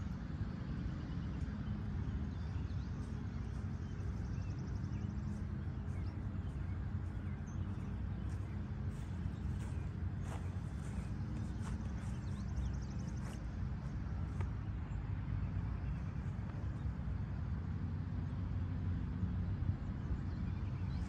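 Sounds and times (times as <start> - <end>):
low outdoor rumble: 0.0 - 21.0
small birds chirping: 1.0 - 17.0.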